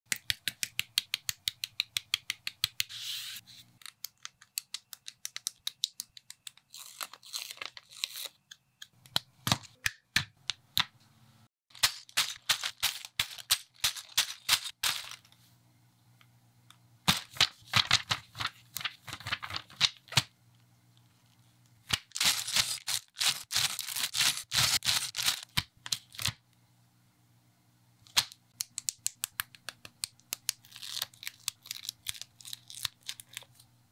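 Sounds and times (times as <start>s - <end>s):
plastic bags rustling: 22.1s - 25.5s.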